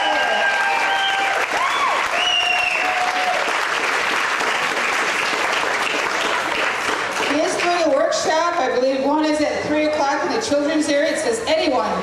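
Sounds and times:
audience applauding: 0.0 - 8.0.

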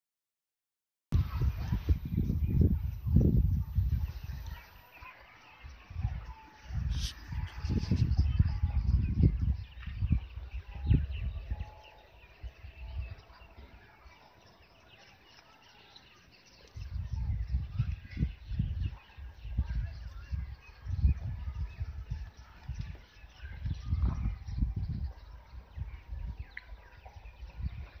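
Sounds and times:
low rumbling on microphone: 1.2 - 4.9, 5.9 - 11.8, 16.7 - 28.0
birds chirping: 1.2 - 28.0.

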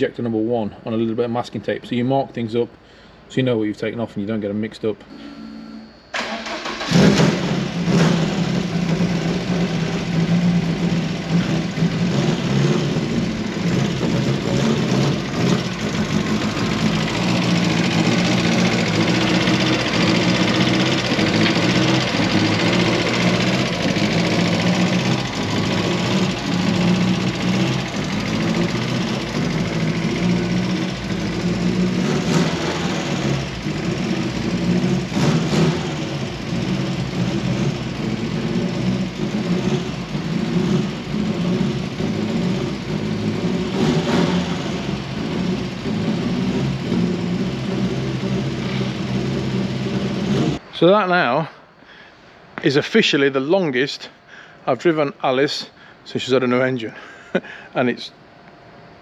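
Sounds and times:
car engine starting and running: 6.0 - 51.0.

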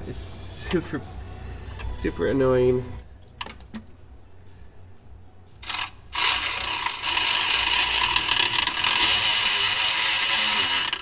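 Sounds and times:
ratchet wrench clicking: 5.6 - 11.0.

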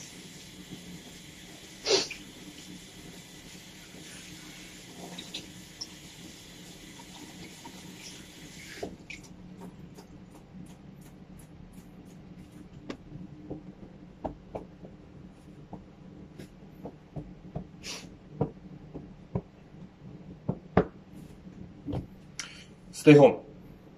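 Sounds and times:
water running from a tap: 0.0 - 9.4.

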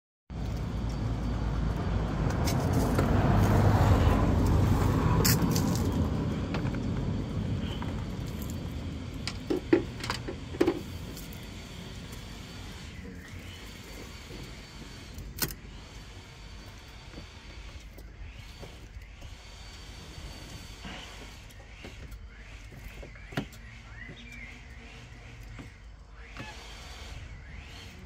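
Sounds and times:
vehicle passing rumble: 0.3 - 13.2.

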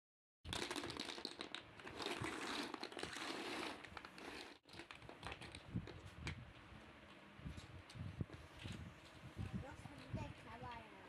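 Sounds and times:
plastic toy blocks clattering: 0.5 - 6.0.

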